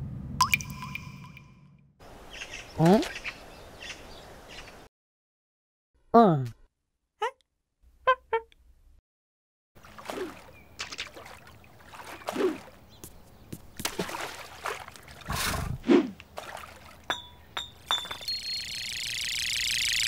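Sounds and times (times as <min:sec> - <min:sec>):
water splash: 0:09.8 - 0:12.8, 0:13.8 - 0:17.1
glassy clinks: 0:17.1 - 0:18.9.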